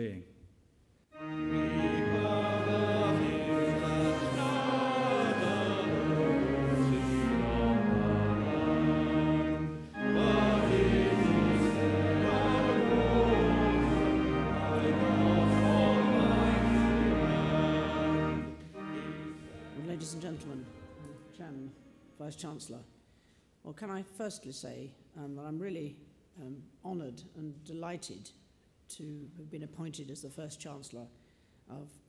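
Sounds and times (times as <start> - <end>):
organ accompaniment: 1.1 - 21.7
congregation and choir singing hymn: 1.2 - 21.9.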